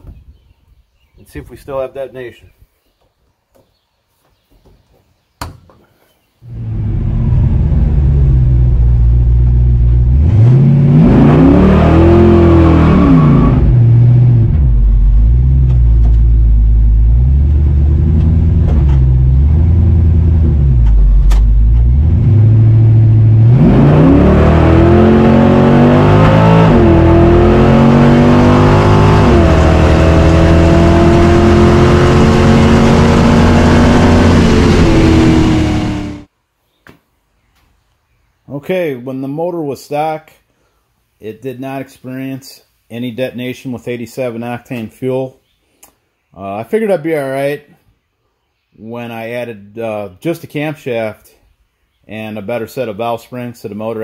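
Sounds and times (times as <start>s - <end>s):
car engine revving and accelerating: 6.5s - 36.3s.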